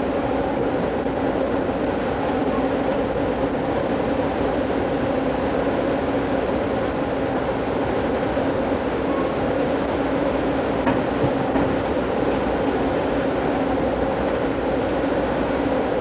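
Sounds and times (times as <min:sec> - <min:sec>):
train rumble inside car: 0:00.0 - 0:16.0.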